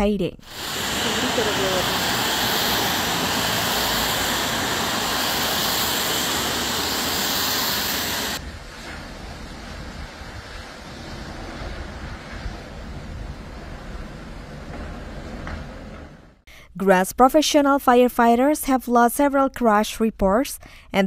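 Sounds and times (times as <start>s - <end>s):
storm wind and rain rushing: 0.4s - 16.4s
low rumble of wind: 0.5s - 16.4s.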